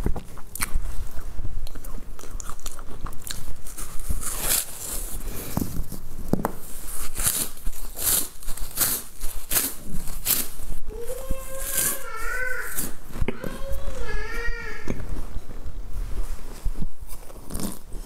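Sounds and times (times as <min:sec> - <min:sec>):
snack sticks crunching: 0:00.0 - 0:05.6, 0:06.9 - 0:10.8.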